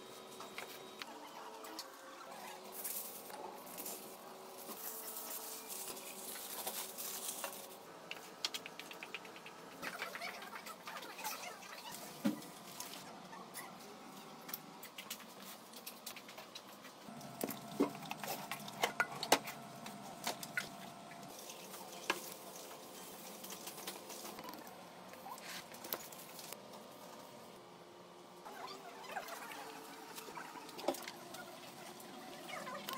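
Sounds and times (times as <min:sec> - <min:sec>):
aluminium foil crinkling: 0:02.7 - 0:07.8, 0:21.3 - 0:26.6.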